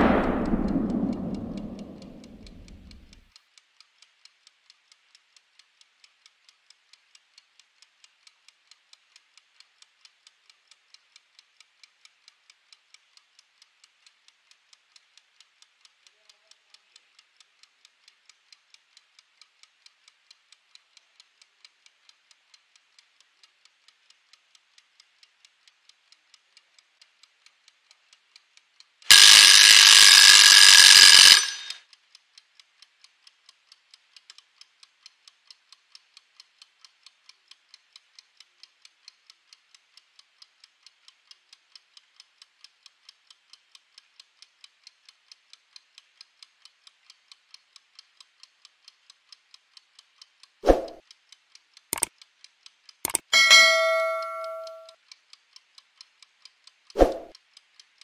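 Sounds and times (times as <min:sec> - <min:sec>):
kitchen timer ticking: 0:04.2 - 0:32.0, 0:32.9 - 0:58.0
timer bell ringing: 0:53.1 - 0:54.9.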